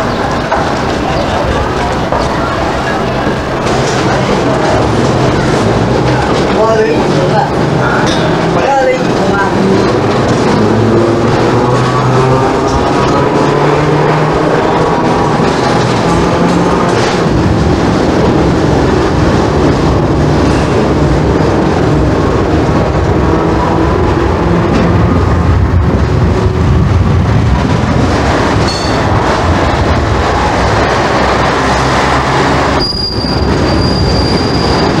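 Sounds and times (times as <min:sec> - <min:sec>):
electric tram running on track: 0:00.0 - 0:35.0
tram wheel squeal: 0:28.6 - 0:29.2, 0:31.5 - 0:35.0.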